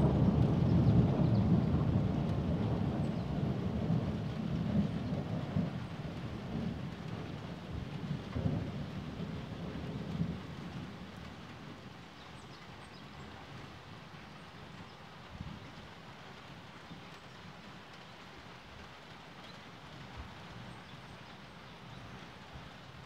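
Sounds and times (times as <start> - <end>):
distant thunder rumbling: 0.0 - 12.0.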